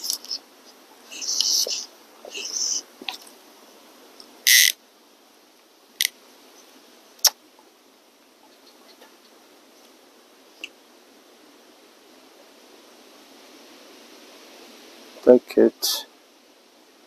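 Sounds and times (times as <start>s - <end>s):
faint steady hiss: 0.0s - 17.0s.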